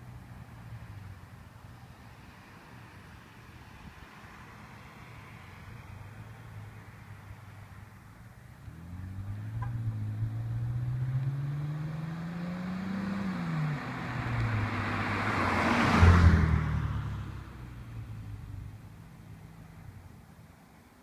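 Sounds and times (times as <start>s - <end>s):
car accelerating past: 8.6s - 18.9s.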